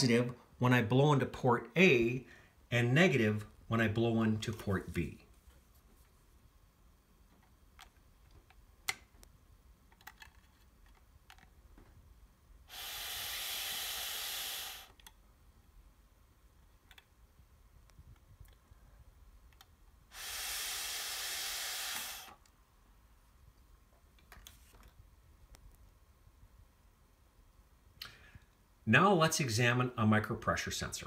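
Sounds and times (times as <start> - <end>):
breath hissing through straw: 12.7 - 15.0, 20.1 - 22.4.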